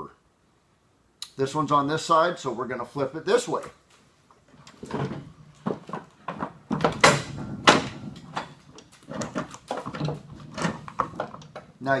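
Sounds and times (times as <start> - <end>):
lawn mower clunking on workbench: 4.6 - 11.8.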